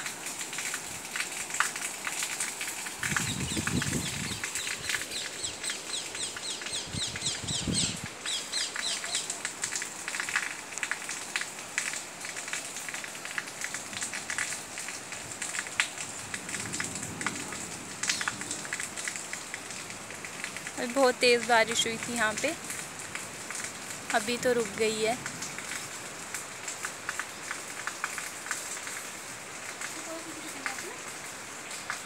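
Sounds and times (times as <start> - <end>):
rainwater dripping: 0.0 - 32.0.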